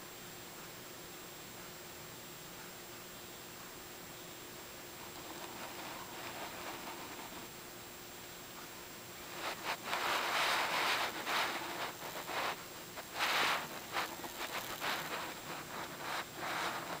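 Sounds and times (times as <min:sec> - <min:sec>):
dog snuffling and breathing: 0:05.0 - 0:07.5, 0:09.2 - 0:17.0.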